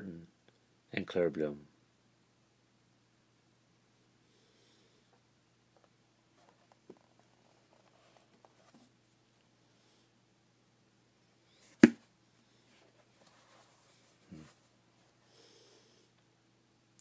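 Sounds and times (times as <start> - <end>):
low room hum: 0.0 - 17.0
book thumping: 11.7 - 12.0
book knocking on shelf: 11.8 - 12.0.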